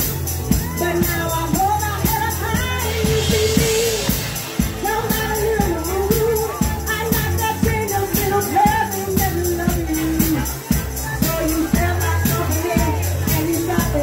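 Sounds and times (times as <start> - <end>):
amplified music with steady beat: 0.0 - 14.0
woman singing into a microphone: 0.5 - 14.0.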